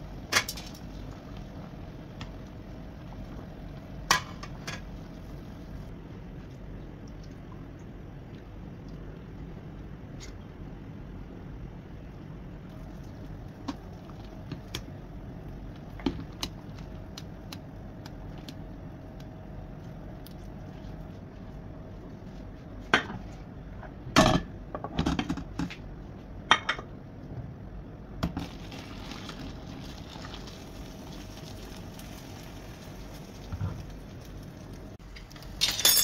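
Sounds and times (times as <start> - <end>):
water pouring into a pot: 28.4 - 35.0.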